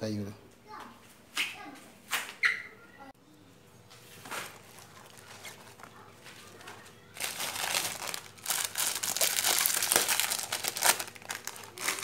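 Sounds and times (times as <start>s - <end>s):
plastic packet crinkling: 4.3s - 12.0s.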